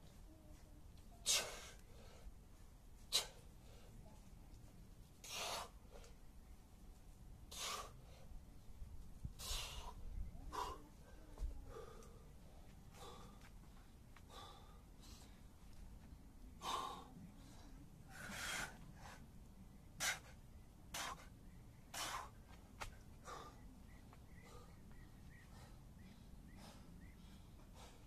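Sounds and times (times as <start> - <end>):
man breathing hard: 1.2 - 2.4, 3.0 - 4.0, 5.2 - 6.1, 7.5 - 15.6, 16.5 - 19.3, 20.0 - 23.7, 24.3 - 28.0.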